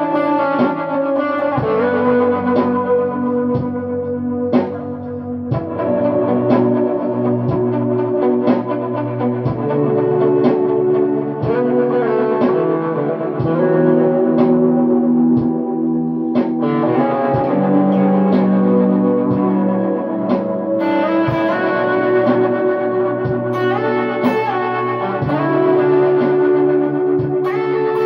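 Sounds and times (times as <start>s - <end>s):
electric guitar with reverb: 0.0s - 28.0s.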